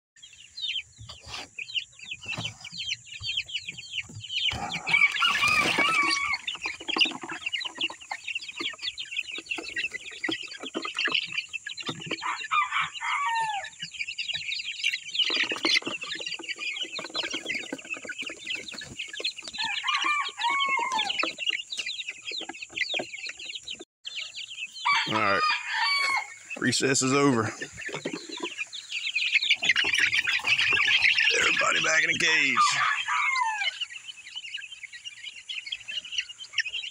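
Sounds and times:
chicks peeping and chirping: 0:00.2 - 0:36.9.

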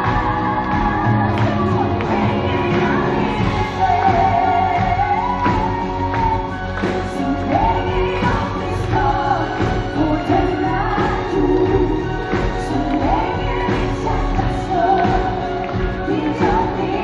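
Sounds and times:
symphony orchestra: 0:00.0 - 0:17.0
woman singing pop melody: 0:00.0 - 0:17.0.

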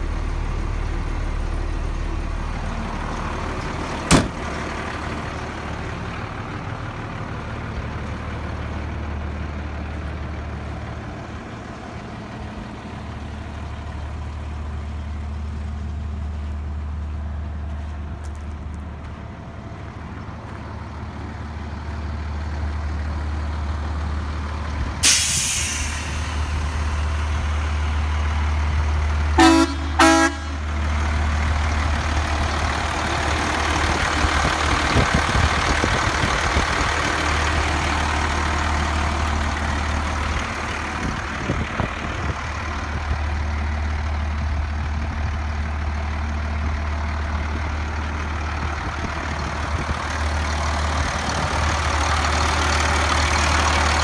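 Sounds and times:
truck engine idling: 0:00.0 - 0:54.0
air hissing: 0:25.0 - 0:27.3
horn toots: 0:29.4 - 0:30.7.

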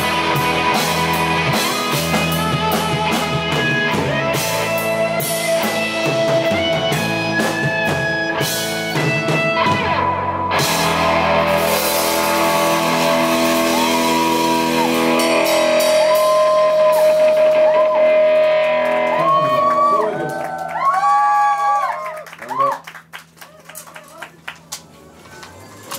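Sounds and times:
live rock band playing: 0:00.0 - 0:20.6
bending high guitar line: 0:00.0 - 0:22.0.

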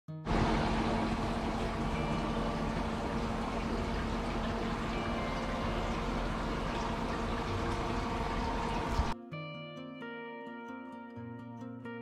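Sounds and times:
low steady hum: 0:00.3 - 0:09.2
rushing background noise: 0:00.3 - 0:09.2.

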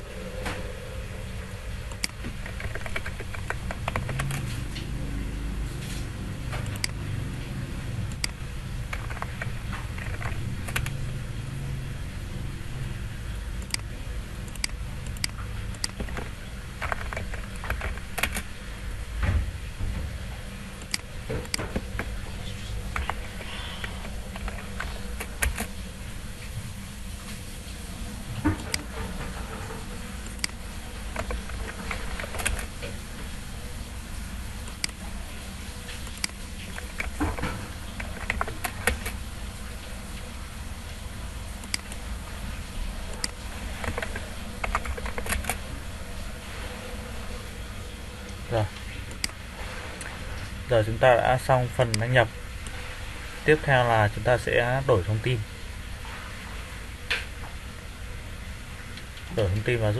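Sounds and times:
low steady hum: 0:00.0 - 0:59.9
keyboard keystrokes: 0:01.9 - 0:04.6, 0:08.1 - 0:11.0, 0:14.5 - 0:18.5, 0:22.9 - 0:25.8, 0:30.3 - 0:32.7, 0:36.1 - 0:39.2, 0:43.2 - 0:45.7.

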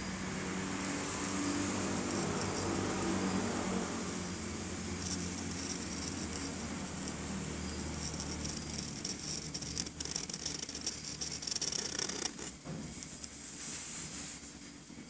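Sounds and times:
steady low hum: 0:00.0 - 0:15.0
marker scratching on paper: 0:04.9 - 0:12.6.

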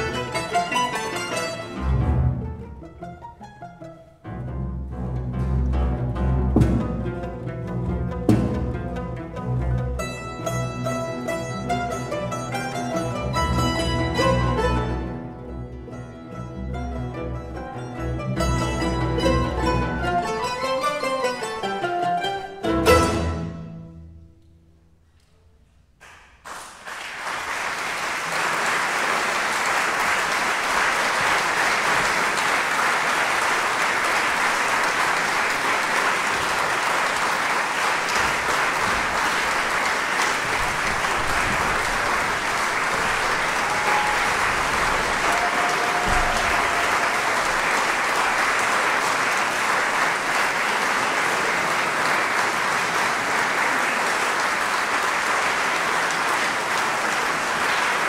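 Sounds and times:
audience applauding: 0:00.0 - 0:01.8, 0:26.0 - 0:58.0.

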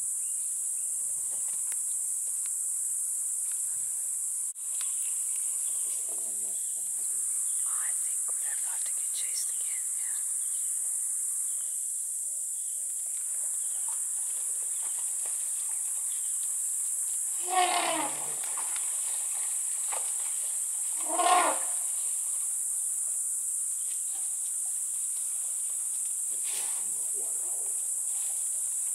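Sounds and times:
high-pitched insect drone: 0:00.0 - 0:28.9
animal calls sliding down: 0:17.4 - 0:18.6, 0:20.9 - 0:21.8.

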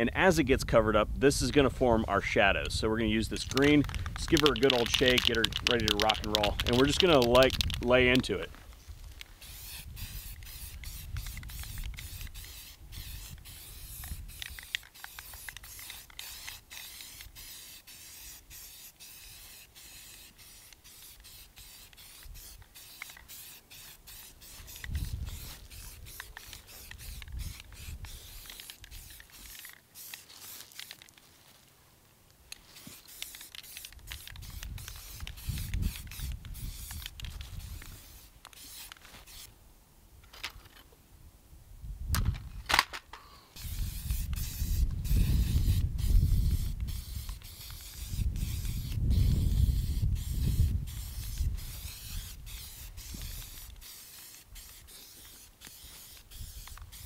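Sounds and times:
spray paint can hissing: 0:02.2 - 0:31.2, 0:32.5 - 0:39.5, 0:43.6 - 0:57.0.

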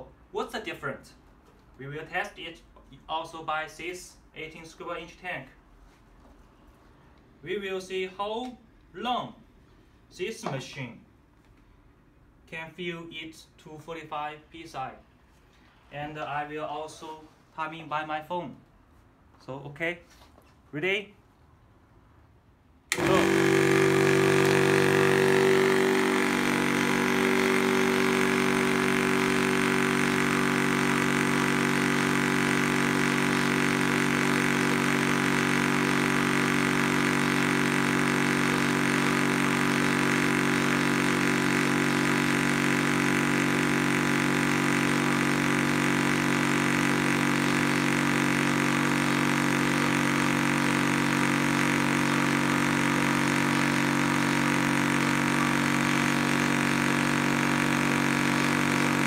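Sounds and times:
air compressor humming: 0:22.9 - 0:59.0.

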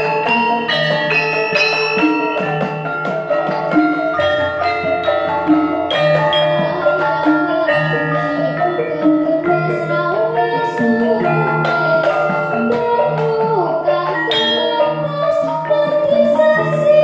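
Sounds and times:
gamelan bronze keys and gongs: 0:00.0 - 0:17.0
girl singing through a microphone: 0:06.5 - 0:17.0.

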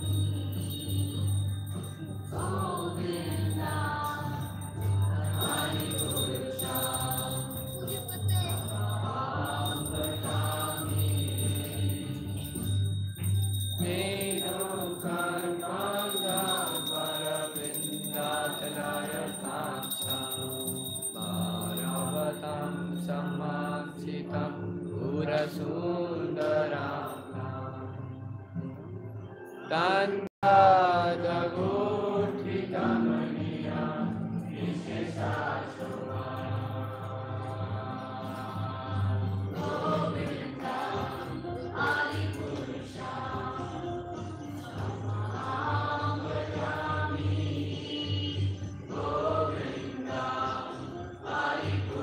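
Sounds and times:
musical accompaniment: 0:00.0 - 0:17.0
voices chanting together: 0:00.0 - 0:28.2, 0:29.3 - 0:52.0.

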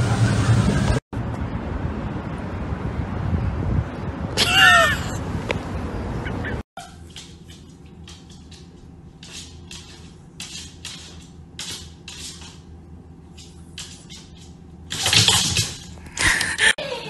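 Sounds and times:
dog claws scratching wooden floor: 0:07.0 - 0:12.7, 0:13.3 - 0:16.0.

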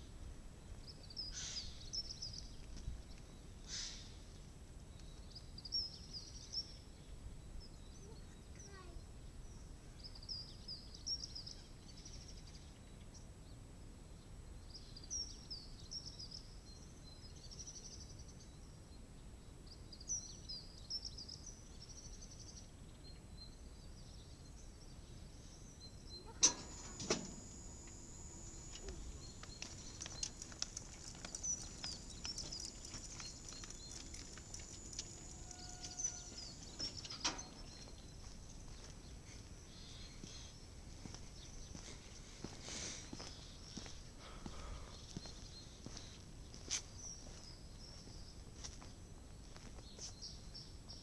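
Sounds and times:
small birds chirping: 0:00.6 - 0:13.3, 0:19.7 - 0:48.9
barrier drive clunk: 0:26.4 - 0:29.0
barrier motor whine with clicks: 0:26.4 - 0:37.4.

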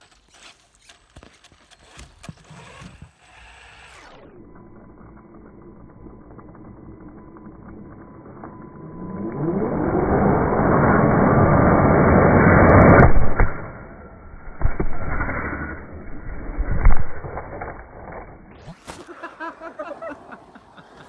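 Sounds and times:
toy car motor whining: 0:00.0 - 0:09.9.

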